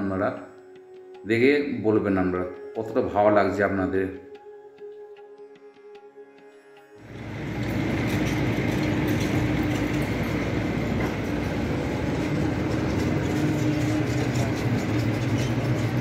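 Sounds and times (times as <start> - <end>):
concrete pump machine drone: 7.0 - 16.0.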